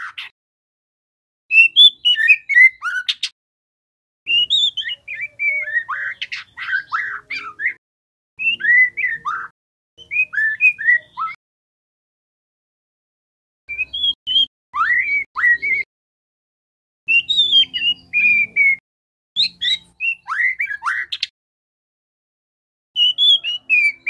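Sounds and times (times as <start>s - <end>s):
songbird whistling and chattering: 1.5s - 3.3s, 4.3s - 7.8s, 8.4s - 11.4s, 13.7s - 15.9s, 17.1s - 18.8s, 19.4s - 21.3s, 23.0s - 24.0s.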